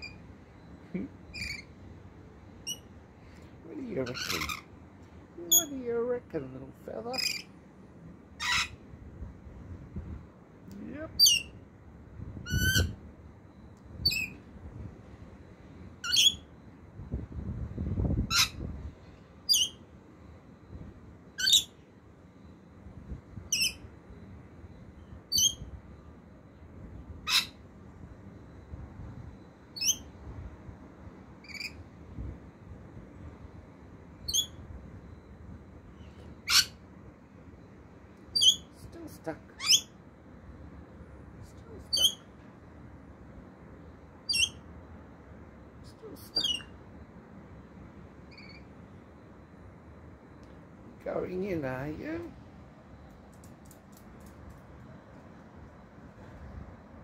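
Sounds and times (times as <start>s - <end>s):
parrot high-pitched chirping: 1.3s - 1.7s, 2.6s - 2.9s, 4.0s - 4.7s, 5.5s - 5.8s, 7.1s - 7.5s, 8.4s - 8.8s, 11.2s - 11.6s, 12.5s - 13.0s, 14.0s - 14.4s, 16.0s - 16.5s, 18.3s - 18.6s, 19.5s - 19.8s, 21.4s - 21.8s, 23.5s - 23.8s, 25.3s - 25.7s, 27.2s - 27.6s, 29.8s - 30.1s, 31.4s - 31.8s, 34.2s - 34.6s, 36.4s - 36.8s, 38.3s - 38.9s, 39.6s - 40.0s, 41.8s - 42.3s, 44.3s - 44.6s, 46.1s - 46.8s, 48.3s - 48.7s.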